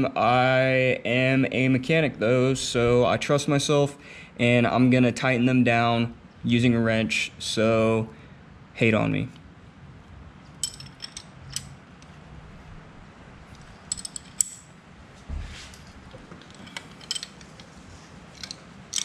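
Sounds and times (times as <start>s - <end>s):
wrench clicking on metal: 10.6s - 11.7s, 13.8s - 14.7s, 18.4s - 19.0s.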